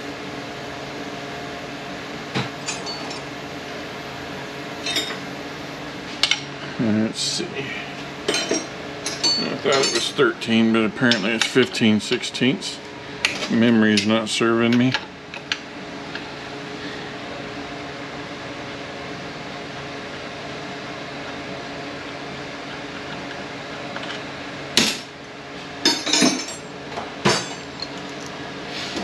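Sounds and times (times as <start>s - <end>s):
steady low hum: 0.0s - 29.0s
tools clanking on steel bench: 8.3s - 10.2s, 25.8s - 28.3s.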